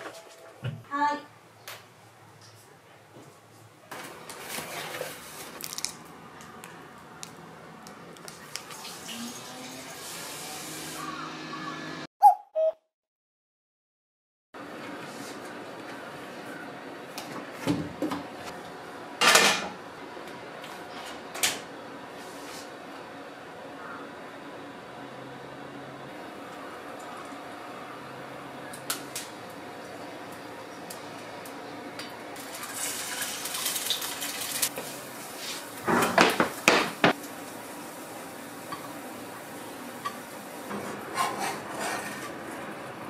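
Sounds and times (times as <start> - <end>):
egg sizzling in a pan: 32.4 - 35.9.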